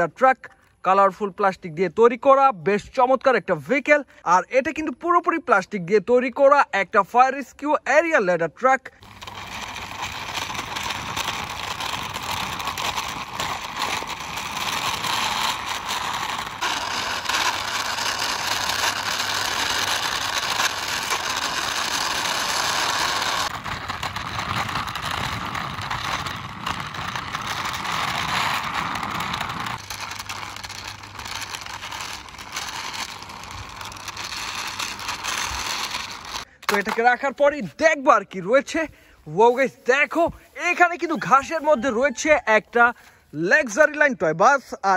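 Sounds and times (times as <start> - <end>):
toy truck wheels grinding on stone: 8.9 - 38.9, 39.5 - 43.8.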